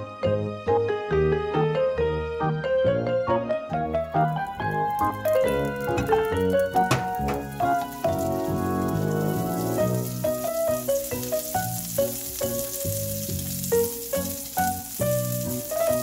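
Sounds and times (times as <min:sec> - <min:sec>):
piano-like background music: 0:00.0 - 0:16.0
butter sizzling in a frying pan: 0:03.8 - 0:16.0.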